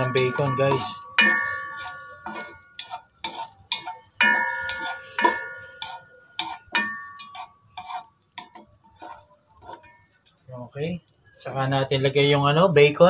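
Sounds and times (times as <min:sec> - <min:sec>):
spatula knocking on metal pot: 0:00.0 - 0:09.8
pot ringing: 0:00.0 - 0:10.2.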